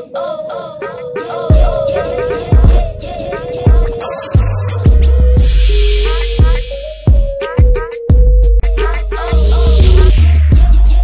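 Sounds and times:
rising rush of noise: 0.7 - 7.1
kick drum beat: 1.5 - 1.8, 2.5 - 2.9, 3.7 - 5.7, 6.4 - 8.5, 9.8 - 10.8
deep held bass: 4.4 - 7.2, 8.1 - 11.0.

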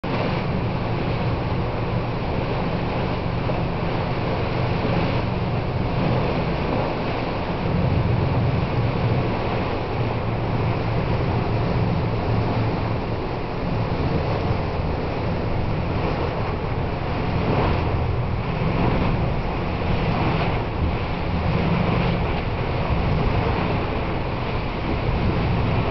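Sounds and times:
low rumble: 0.0 - 25.9
sea waves washing: 0.0 - 25.9
wind noise on microphone: 0.0 - 25.9.

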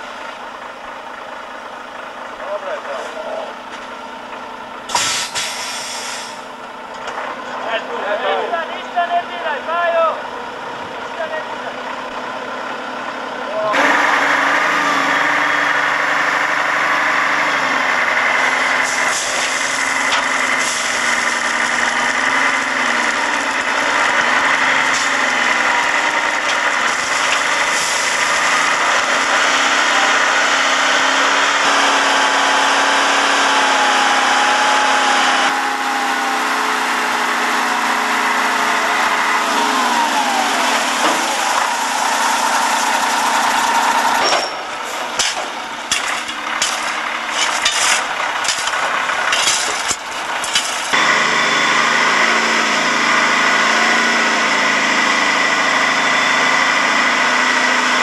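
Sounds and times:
diesel engine running: 0.0 - 58.0
knocks and clatter: 44.2 - 51.0.

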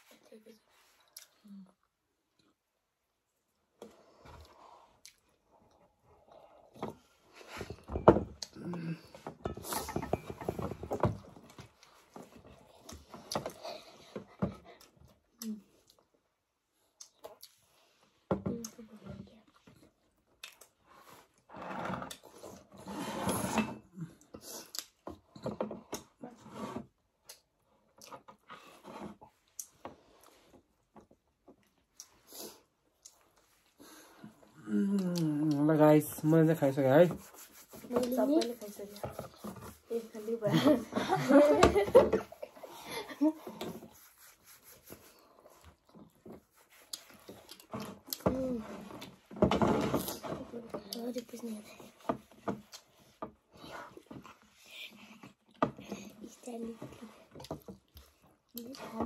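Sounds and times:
soft chewing: 0.1 - 7.4, 11.5 - 21.5, 27.2 - 35.6, 44.4 - 48.3, 52.6 - 58.9.

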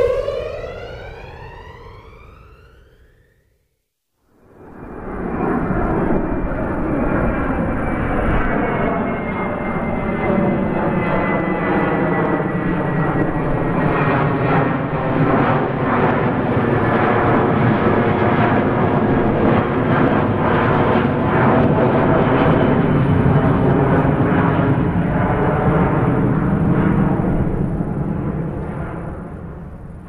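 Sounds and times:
thin high whine: 0.0 - 3.3
airplane engines running: 0.0 - 3.4, 4.4 - 30.0.

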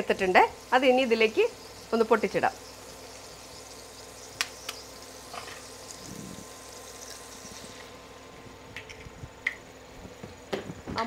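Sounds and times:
greens sizzling in a pan: 0.0 - 8.7.

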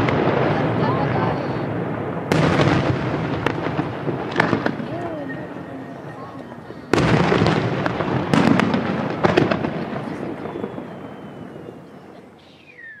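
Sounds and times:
fireworks bangs: 0.0 - 13.0
rumbling echo: 0.0 - 13.0
falling whistle: 10.1 - 13.0.

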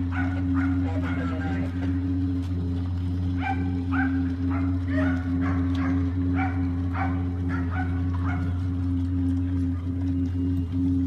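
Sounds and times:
dog barking: 0.0 - 1.6, 3.4 - 8.7
low engine drone: 0.0 - 11.0.

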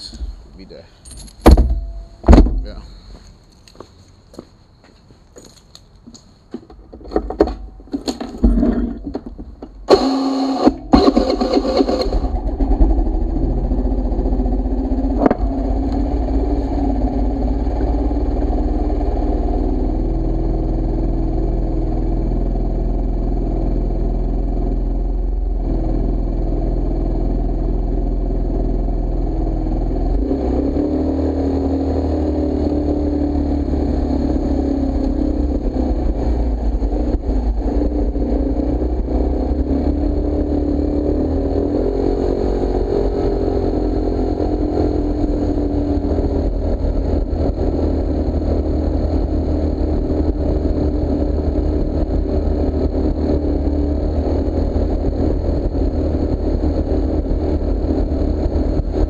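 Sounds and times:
clicks and knocks: 6.5 - 9.9
scooter engine starting and idling: 8.1 - 25.1.

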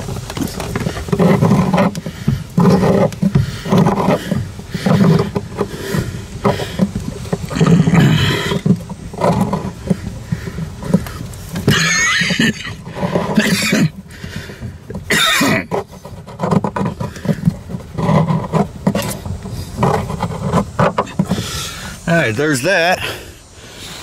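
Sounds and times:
drain plug scraping: 0.0 - 23.2.

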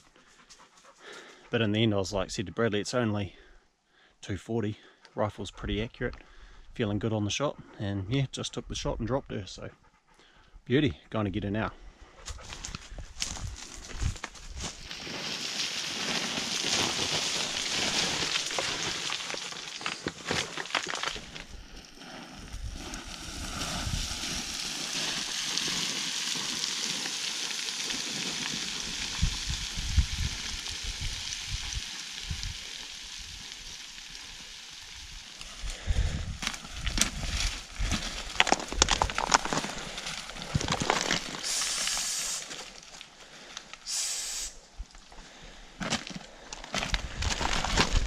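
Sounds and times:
crunching footfalls: 12.2 - 29.4, 35.4 - 41.8, 45.8 - 48.0
stones clattering: 12.5 - 21.7, 36.4 - 42.0, 45.8 - 48.0
scree hissing and rattling: 41.4 - 42.6.

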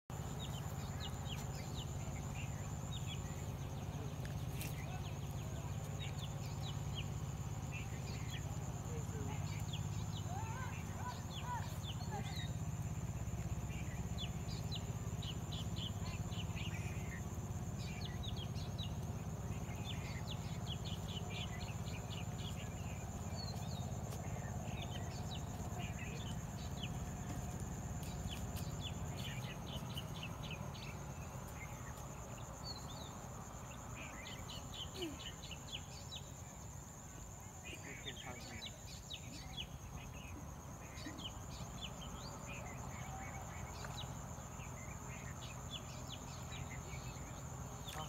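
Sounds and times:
low steady rumble: 0.1 - 34.8
bird chirps: 0.1 - 48.0.

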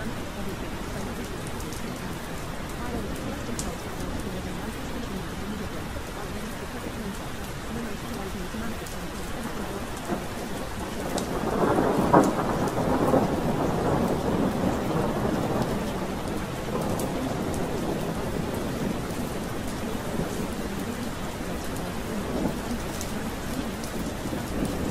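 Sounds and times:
steady rain falling: 0.0 - 24.9
thunder rolling: 9.9 - 24.9.

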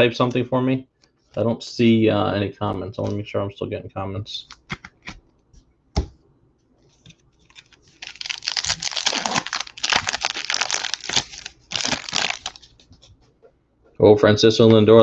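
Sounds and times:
foil wrapper tearing and crinkling: 7.4 - 12.9.

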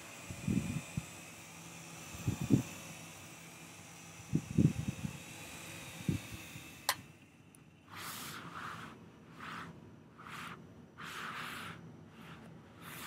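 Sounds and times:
toy helicopter motor humming: 0.0 - 7.4.

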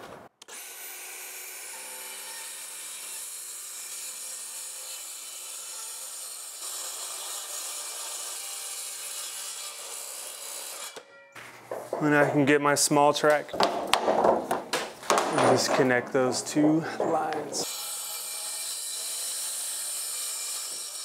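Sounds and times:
track saw cutting plywood: 0.4 - 11.0, 17.6 - 21.0.

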